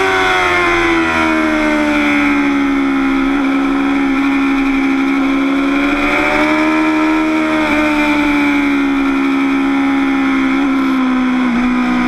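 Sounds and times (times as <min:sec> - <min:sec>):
motorcycle engine at high revs: 0:00.0 - 0:12.0.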